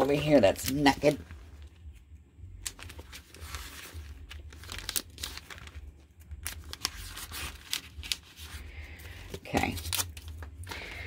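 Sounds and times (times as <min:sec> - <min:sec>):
paper pages flipping: 0:00.0 - 0:11.0.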